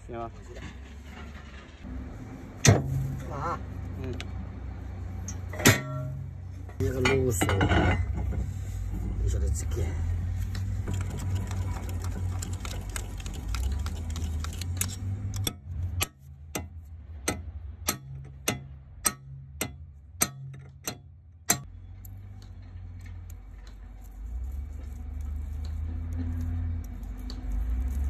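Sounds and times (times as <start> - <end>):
steel punch tapping metal: 15.4 - 21.7.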